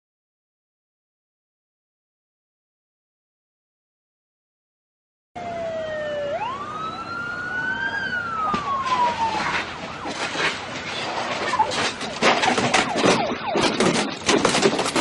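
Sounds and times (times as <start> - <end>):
police siren wailing: 5.4 - 15.0
motorcycle crashing and scraping: 8.4 - 15.0.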